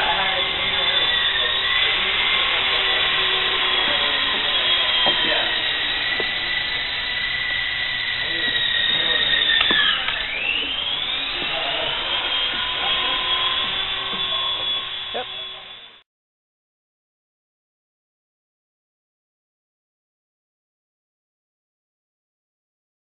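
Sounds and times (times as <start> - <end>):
toy helicopter motor whine: 0.0 - 16.0.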